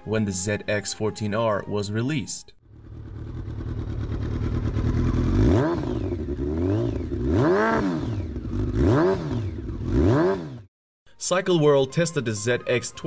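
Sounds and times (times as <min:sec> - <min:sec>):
motorcycle engine idling and revving: 0:02.6 - 0:10.7.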